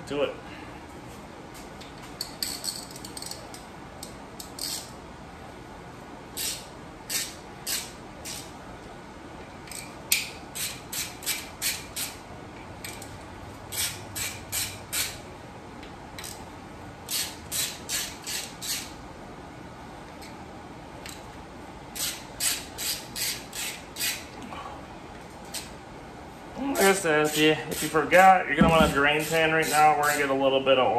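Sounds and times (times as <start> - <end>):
hand ratchet clicking: 2.2 - 4.9, 6.4 - 8.5, 9.6 - 12.2, 13.7 - 15.2, 17.1 - 18.9, 22.0 - 24.3.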